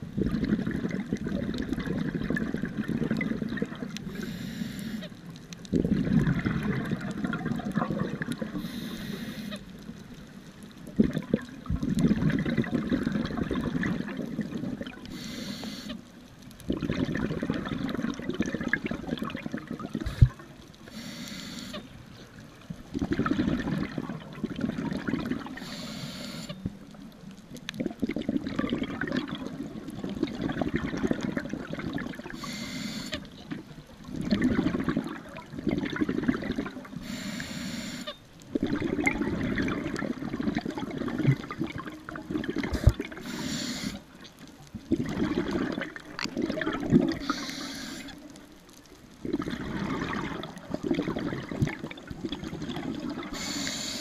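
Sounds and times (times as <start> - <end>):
exhaled bubbles rushing: 0.0 - 4.2, 5.6 - 8.7, 10.8 - 15.2, 16.6 - 20.6, 22.9 - 25.7, 27.6 - 32.4, 33.5 - 37.0, 38.5 - 43.4, 44.1 - 48.2, 49.1 - 53.7
regulator inhale hiss: 4.1 - 5.1, 8.6 - 9.6, 15.1 - 16.0, 20.0 - 22.2, 25.6 - 26.6, 32.3 - 33.3, 37.0 - 38.1, 42.8 - 44.2, 47.2 - 48.2, 53.3 - 54.0.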